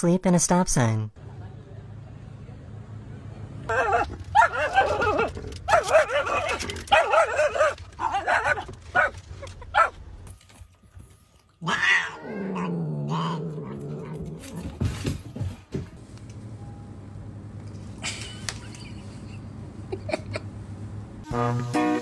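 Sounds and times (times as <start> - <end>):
dog whining yelps: 3.7 - 9.1
cat growling: 11.6 - 14.7.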